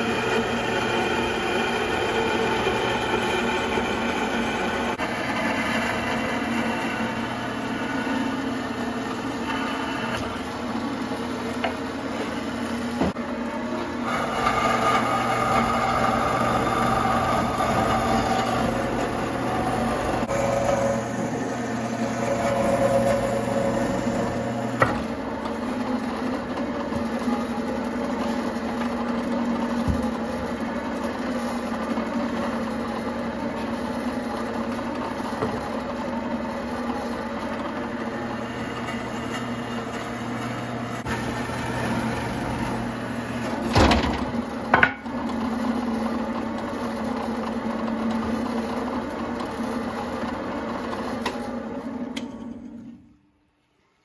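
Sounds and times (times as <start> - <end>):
bandsaw cutting wood: 0.0 - 11.6, 14.0 - 26.1, 38.1 - 43.7.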